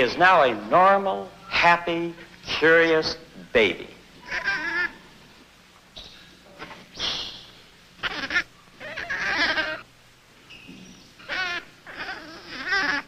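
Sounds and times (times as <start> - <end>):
infant monkey crying: 4.2 - 5.2, 6.0 - 9.9, 10.9 - 13.0.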